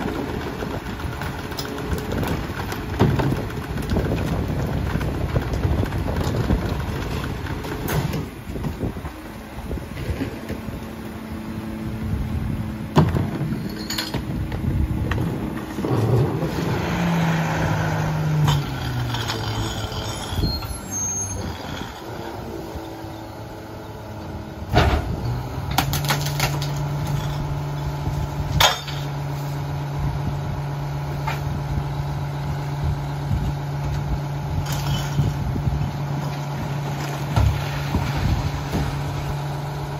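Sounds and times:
carts banging into hopper: 0.0 - 9.0, 12.9 - 14.4, 28.5 - 29.2
garbage truck diesel engine: 0.0 - 39.9.

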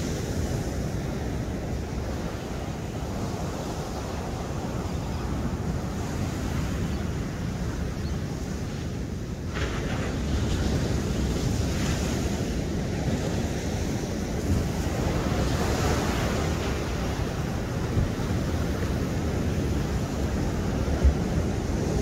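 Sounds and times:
sea waves breaking on a beach: 0.0 - 22.0
wind rumbling on microphone: 0.0 - 22.0.

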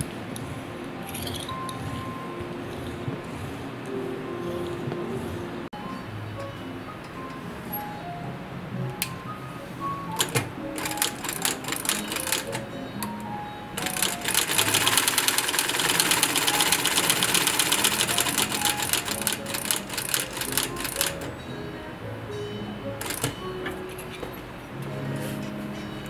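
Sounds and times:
background music: 0.0 - 26.0
sewing machine stitching leather: 13.8 - 21.3.

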